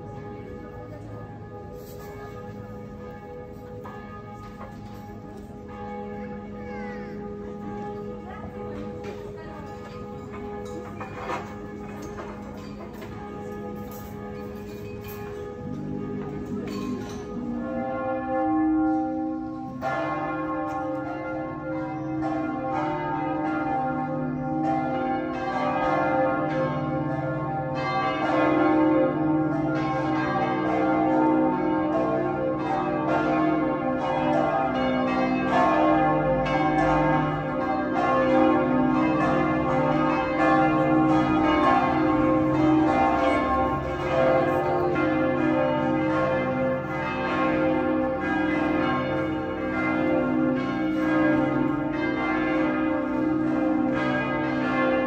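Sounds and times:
church bells pealing: 0.0 - 55.0.

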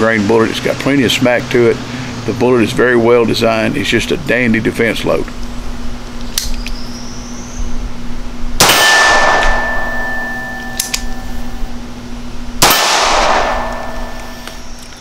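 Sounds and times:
gunshots with metallic ringing: 8.6 - 11.3, 12.6 - 14.4.

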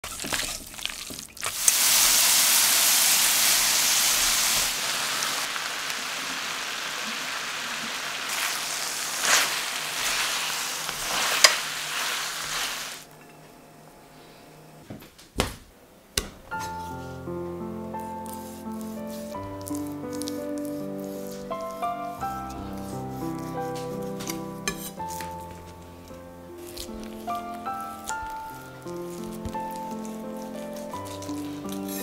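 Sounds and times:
noodles sizzling in wok: 1.4 - 13.1
sharp crackles: 2.6 - 13.1, 26.6 - 32.0.

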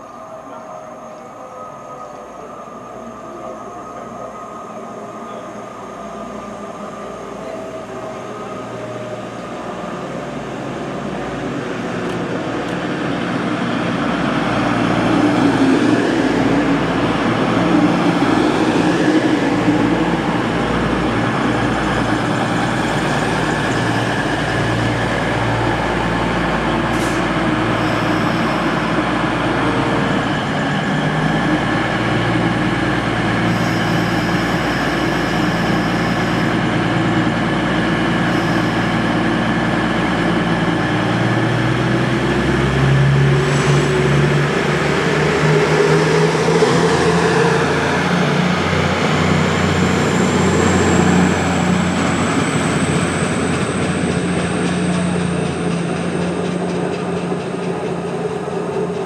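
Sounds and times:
train diesel engines running: 0.0 - 59.0.

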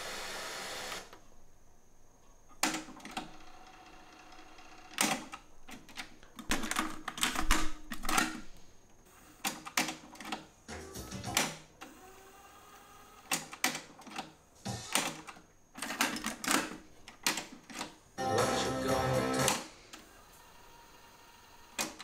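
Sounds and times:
steady system hiss: 0.0 - 2.5.

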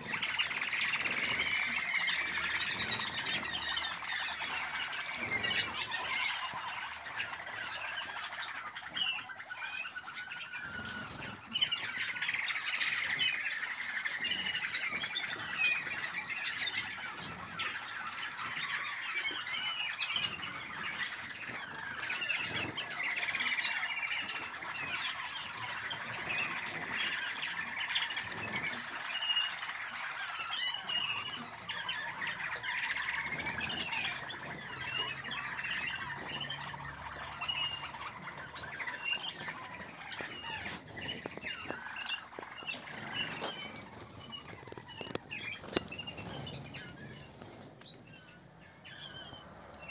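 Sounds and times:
canaries chirping and warbling: 0.0 - 49.9.

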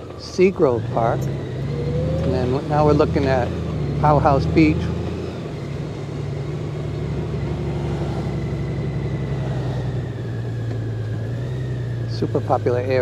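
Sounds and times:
motorcycle engine running: 0.0 - 13.0
road and wind noise: 0.0 - 13.0.

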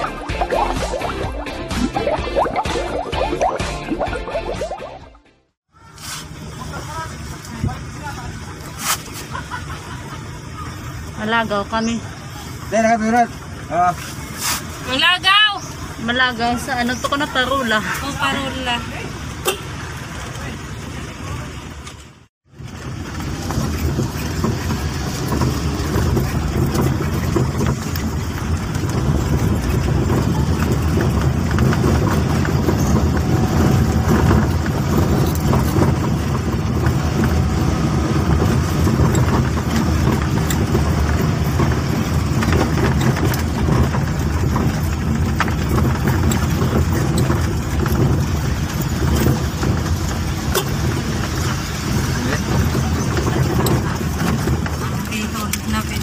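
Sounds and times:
car engine and road noise: 0.0 - 56.0
knocks and rattles: 22.0 - 56.0.

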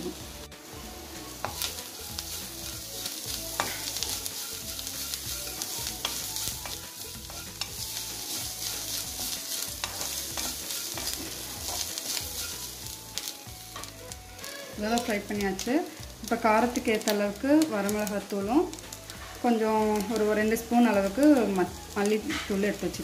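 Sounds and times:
onions sizzling in oil: 0.0 - 23.0
spatula scraping and tapping pan: 1.4 - 15.3, 22.0 - 22.8.

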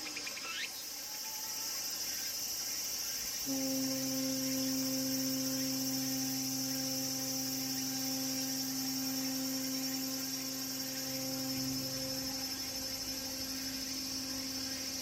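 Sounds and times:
cicadas buzzing: 0.0 - 15.0
ship whistle deep blast: 3.4 - 15.0.

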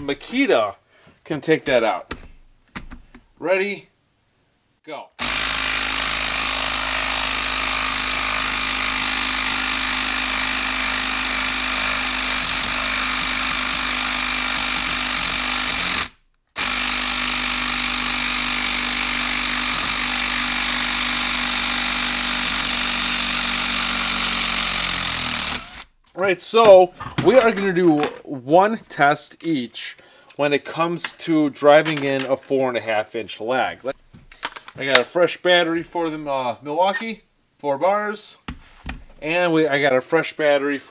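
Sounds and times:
impact driver hammering: 5.2 - 25.8.

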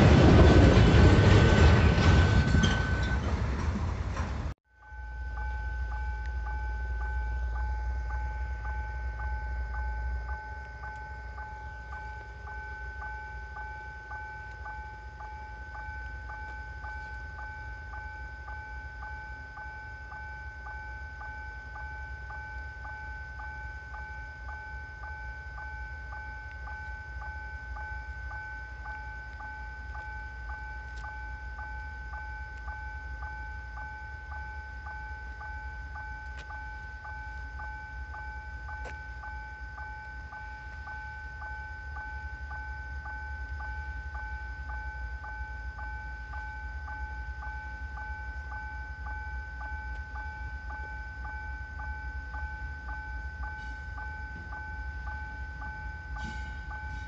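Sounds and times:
low rumble: 0.0 - 4.6.

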